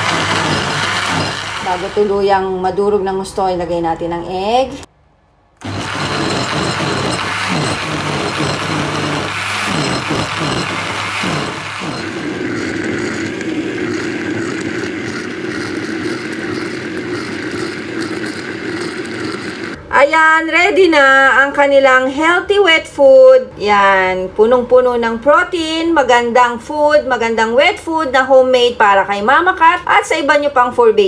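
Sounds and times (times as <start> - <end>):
blender motor running: 0.0 - 2.3, 5.6 - 19.8.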